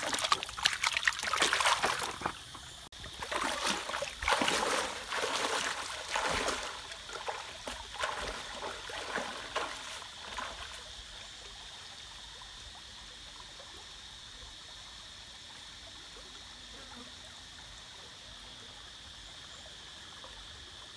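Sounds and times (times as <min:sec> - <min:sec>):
splashing footsteps in stream: 0:00.0 - 0:11.2
stream flowing: 0:00.0 - 0:16.2.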